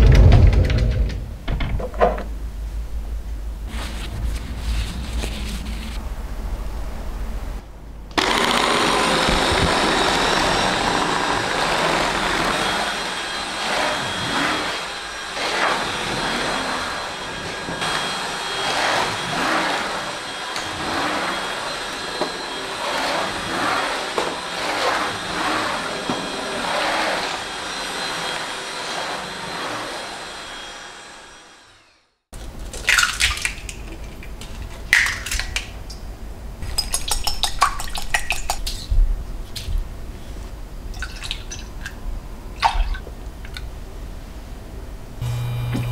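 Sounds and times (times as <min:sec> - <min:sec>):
vacuum cleaner running: 0:08.2 - 0:32.2, 0:45.2 - 0:45.9.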